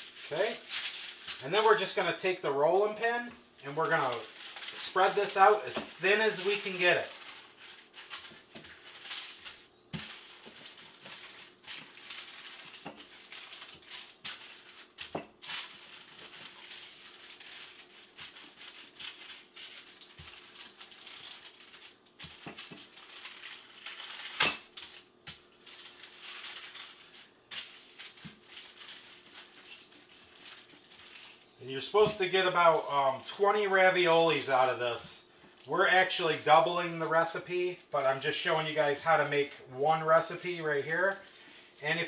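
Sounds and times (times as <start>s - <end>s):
parchment paper crinkling: 0.0s - 42.0s.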